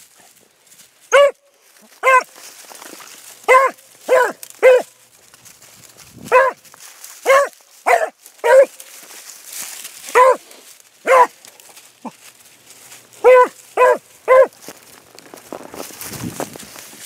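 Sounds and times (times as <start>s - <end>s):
dog barking: 1.1s - 2.4s, 3.4s - 5.0s, 6.3s - 6.6s, 7.2s - 8.9s, 10.1s - 11.4s, 13.2s - 14.6s.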